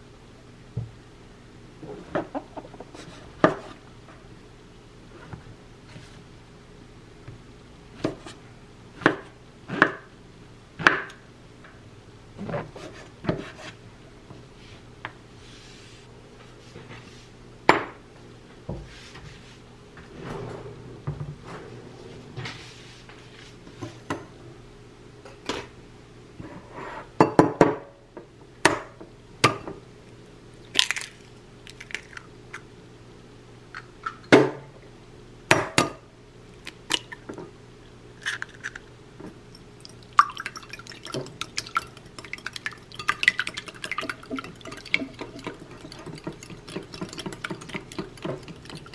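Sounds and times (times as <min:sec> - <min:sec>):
whisk beating egg in glass bowl: 0:40.4 - 0:48.9.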